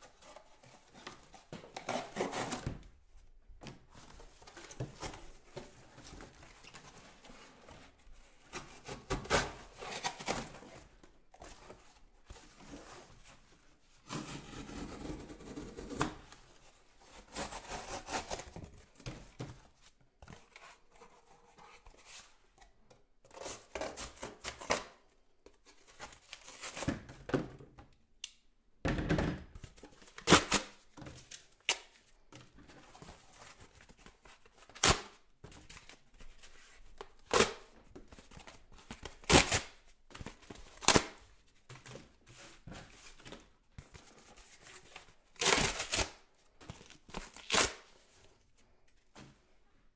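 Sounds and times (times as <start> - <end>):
cardboard ripping: 39.2 - 39.8, 45.4 - 46.2.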